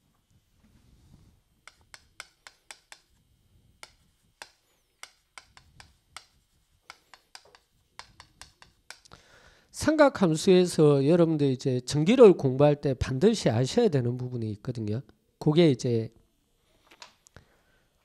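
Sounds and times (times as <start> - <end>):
chalk tapping on chalkboard: 1.6 - 3.2, 3.8 - 9.1.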